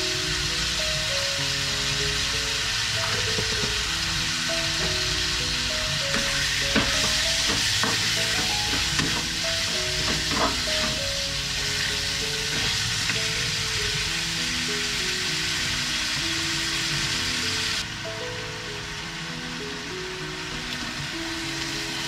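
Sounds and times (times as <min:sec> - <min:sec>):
meat sizzling in a frying pan: 0:00.0 - 0:22.0
soft background music: 0:00.0 - 0:22.0
utensil clacking on pan: 0:03.0 - 0:03.8, 0:06.1 - 0:11.2.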